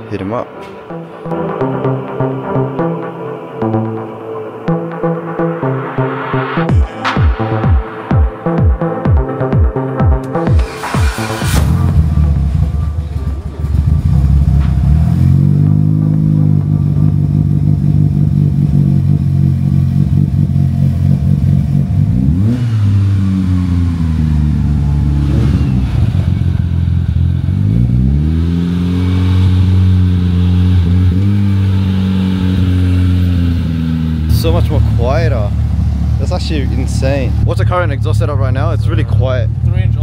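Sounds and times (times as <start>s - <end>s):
car engine idling and revving: 0.0s - 40.0s.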